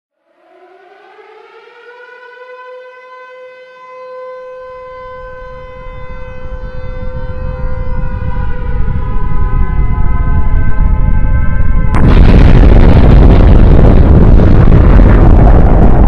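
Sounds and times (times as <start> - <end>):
wailing siren-like tone: 0.2 - 16.0
low rumble: 6.4 - 16.0.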